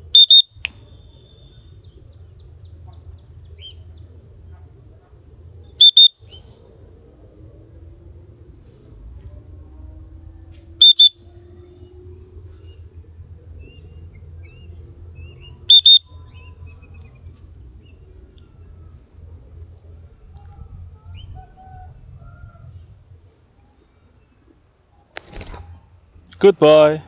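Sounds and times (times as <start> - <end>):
crickets chorus: 0.0 - 27.0
loud double whistle blasts: 0.1 - 0.7, 5.8 - 6.2, 10.8 - 11.2, 15.7 - 16.1.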